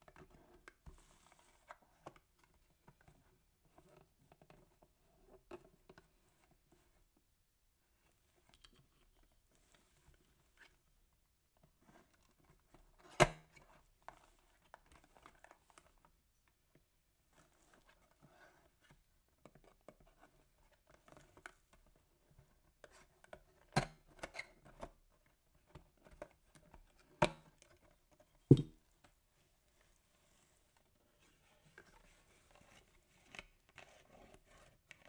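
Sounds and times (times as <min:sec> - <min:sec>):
rustling and tapping on cardboard: 0:25.6 - 0:29.2.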